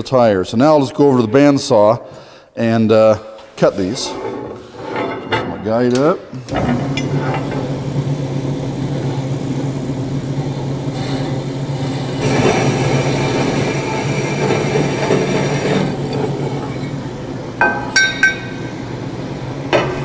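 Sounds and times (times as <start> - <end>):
bandsaw cutting metal tubing: 6.5 - 20.0.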